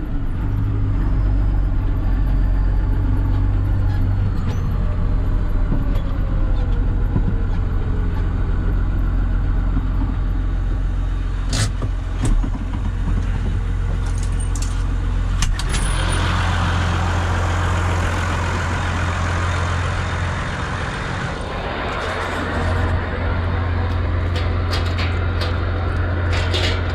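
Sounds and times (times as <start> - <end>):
tractor engine drone: 0.0 - 26.9.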